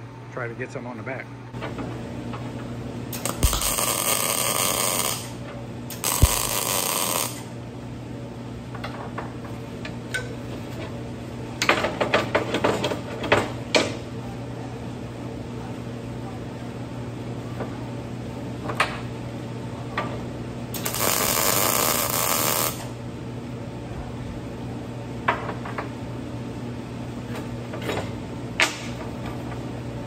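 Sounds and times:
steady low hum: 0.0 - 11.6
electric arc welding crackling: 3.1 - 7.5, 20.8 - 22.9.

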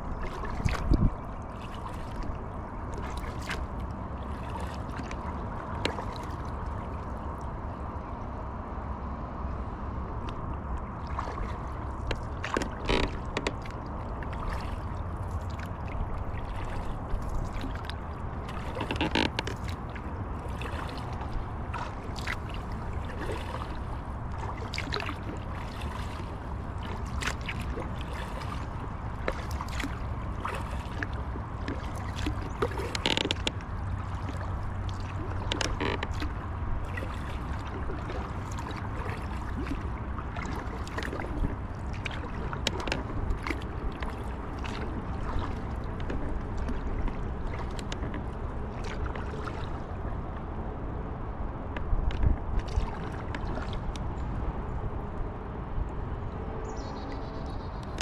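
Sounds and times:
paddle strokes in water: 0.0 - 8.1, 10.2 - 55.2
steady low rumble: 0.0 - 58.0
light clicks and knocks: 12.0 - 13.8, 18.6 - 19.8, 31.6 - 33.6, 35.4 - 36.3, 42.6 - 44.8, 51.7 - 52.4.

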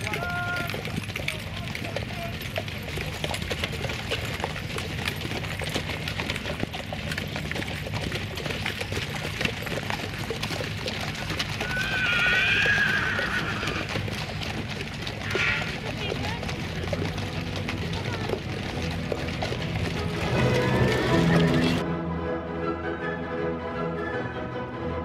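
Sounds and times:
hooves clip-clopping on wet tarmac: 0.0 - 21.8
horse whinnying: 10.2 - 16.2.

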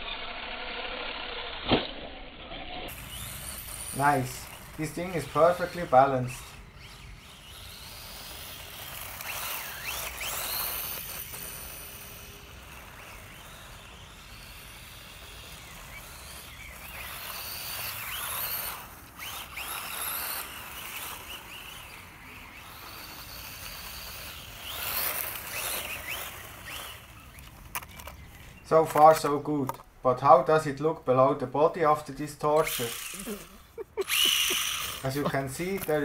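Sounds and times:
electric motor high whine: 0.0 - 29.8, 32.4 - 36.0
tyres hissing on grit: 2.9 - 27.0, 31.8 - 36.0.

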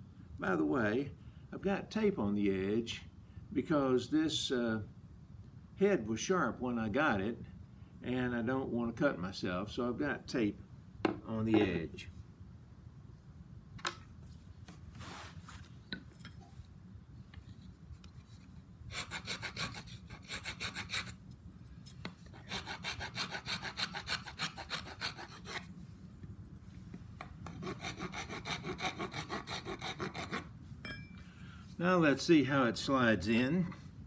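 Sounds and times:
rasp filing wood: 18.9 - 21.2, 22.3 - 25.7, 27.4 - 30.5.

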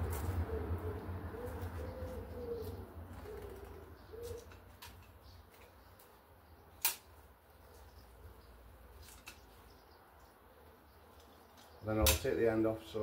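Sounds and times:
pigeon cooing: 0.0 - 4.8.

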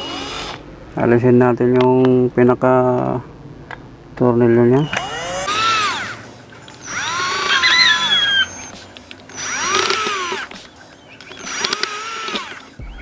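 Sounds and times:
electric screwdriver motor whirring: 4.9 - 12.8.

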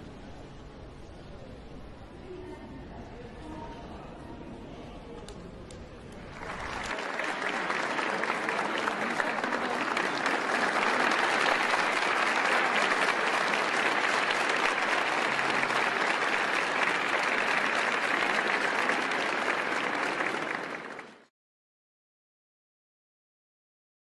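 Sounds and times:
crowd applauding: 6.1 - 21.3.

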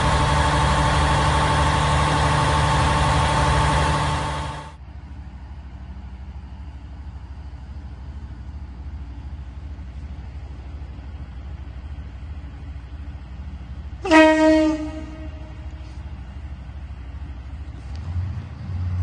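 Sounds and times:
diesel engine rumble: 0.0 - 19.0
train air horn blast: 14.0 - 16.0.

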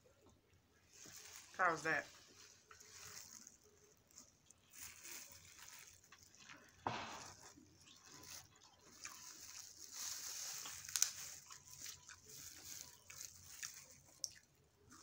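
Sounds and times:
chewing and mouth noises: 2.4 - 6.8, 7.6 - 15.0.

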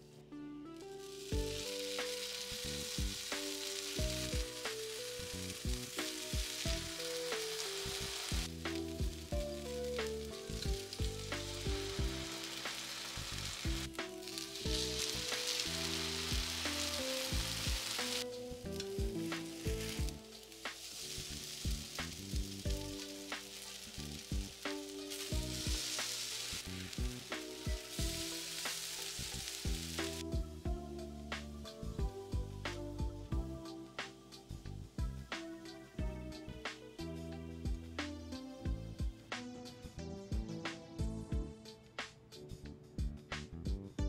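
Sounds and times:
background music with plucked notes: 0.0 - 44.0
bread sizzling in butter: 0.8 - 30.3.

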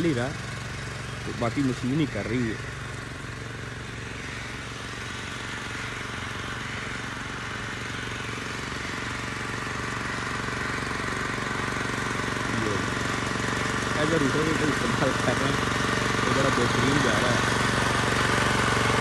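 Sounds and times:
power tiller engine running: 0.0 - 19.0
rotavator churning soil: 7.4 - 19.0.

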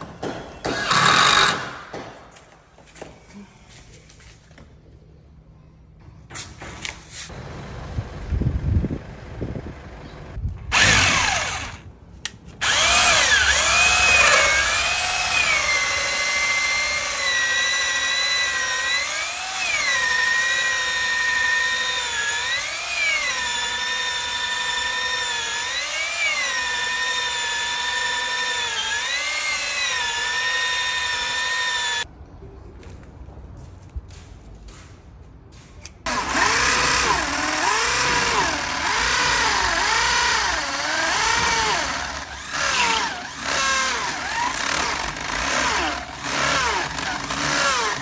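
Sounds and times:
power drill whining: 0.8 - 1.6, 10.7 - 11.8, 12.6 - 32.1, 36.1 - 48.0.

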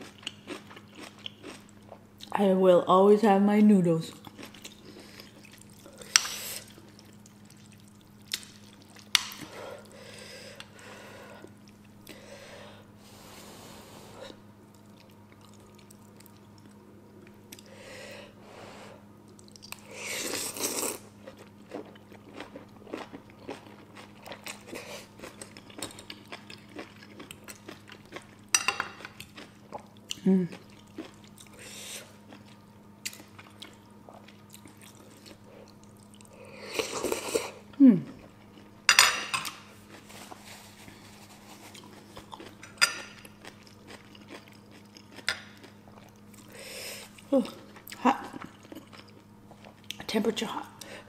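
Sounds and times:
faint steady hum: 0.0 - 51.0
wet chewing: 4.1 - 9.5, 19.3 - 38.7, 39.4 - 50.0.

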